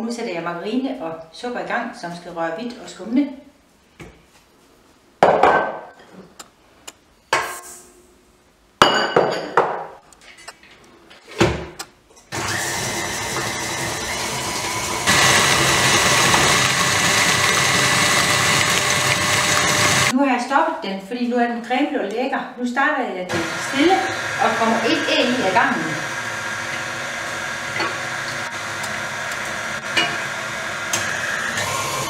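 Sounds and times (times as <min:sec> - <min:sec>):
stand mixer motor running: 0:12.4 - 0:20.1, 0:23.3 - 0:32.0.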